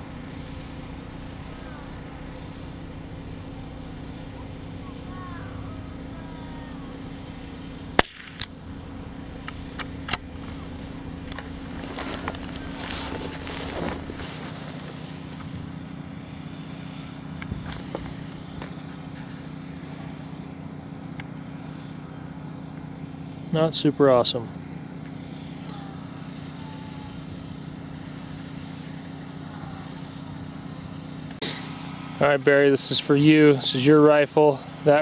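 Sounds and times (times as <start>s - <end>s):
steady low hum: 0.0s - 35.0s
rifle shot: 8.0s - 8.6s
rustling: 10.2s - 15.8s.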